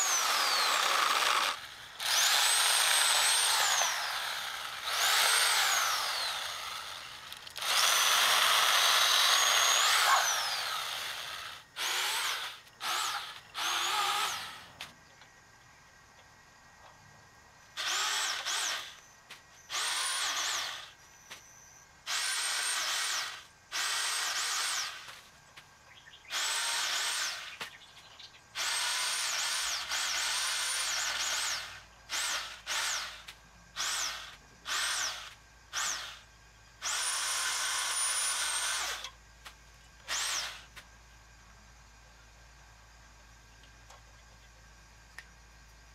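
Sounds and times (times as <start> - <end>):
electric saw motor whining: 0.0 - 14.8, 17.8 - 21.0, 22.0 - 25.2, 26.3 - 27.6, 28.6 - 33.2, 33.8 - 36.2, 36.8 - 39.2, 40.1 - 40.7.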